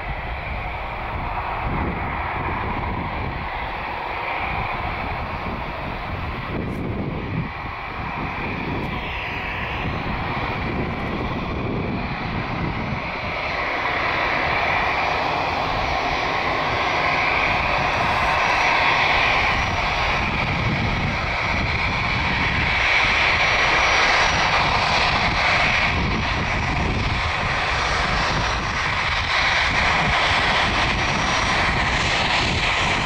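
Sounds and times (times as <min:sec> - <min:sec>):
jet engines whine and rush: 0:00.0 - 0:33.0.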